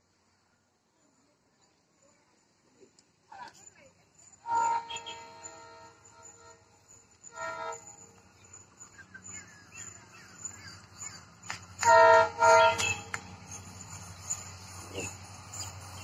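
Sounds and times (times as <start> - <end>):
low train rumble: 0.0 - 16.0
faint horn toot: 4.4 - 8.1, 11.8 - 13.2
locomotive horn blasts: 4.4 - 8.1, 11.8 - 13.4.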